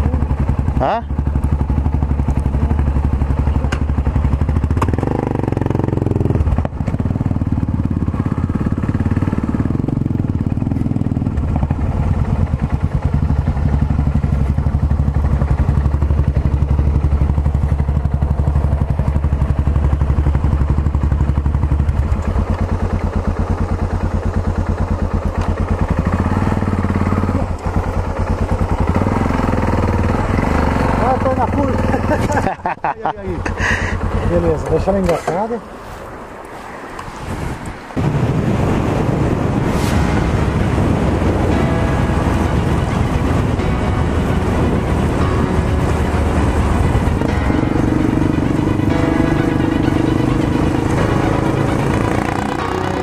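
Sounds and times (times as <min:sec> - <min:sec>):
motorcycle engine running: 0:00.0 - 0:35.5, 0:38.0 - 0:53.0.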